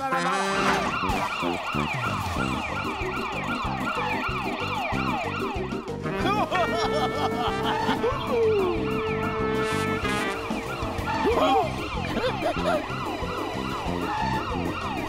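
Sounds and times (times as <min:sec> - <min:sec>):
background music with steady beat: 0:00.0 - 0:15.0
cartoon police siren wailing: 0:00.1 - 0:15.0.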